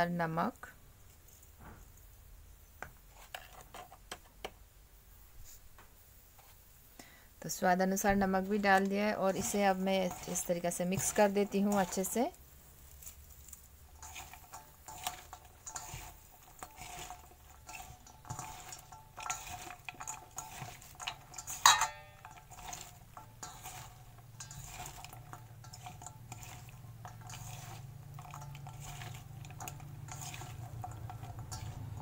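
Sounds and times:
clicks and knocks in steel bowl: 0:13.9 - 0:32.0
ringing metal clink: 0:21.6 - 0:22.3.

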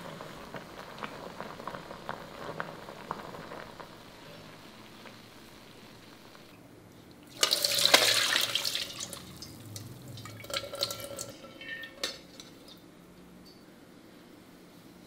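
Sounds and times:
liquid trickling and dripping: 0:06.9 - 0:13.6
liquid splashing through strainer: 0:07.2 - 0:12.8.

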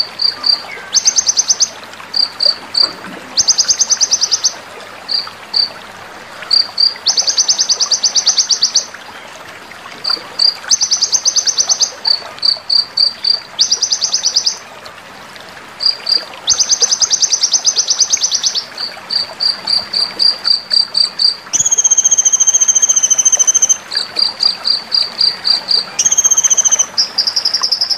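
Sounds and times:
bird singing high chips and trills: 0:00.3 - 0:01.8, 0:13.1 - 0:14.6, 0:21.5 - 0:24.1, 0:25.2 - 0:27.9.

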